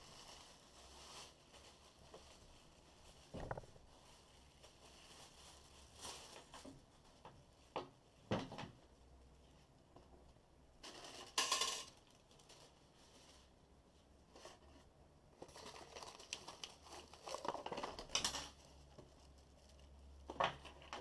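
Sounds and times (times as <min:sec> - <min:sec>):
packing paper rustling: 0:00.0 - 0:07.0, 0:15.4 - 0:19.8.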